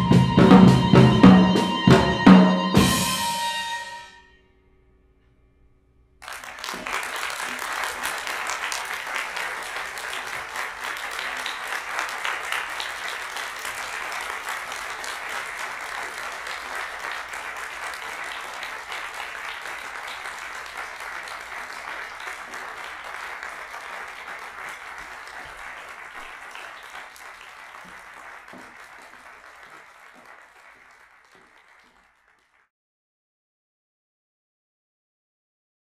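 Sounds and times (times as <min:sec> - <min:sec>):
audience applauding: 0:06.2 - 0:32.7.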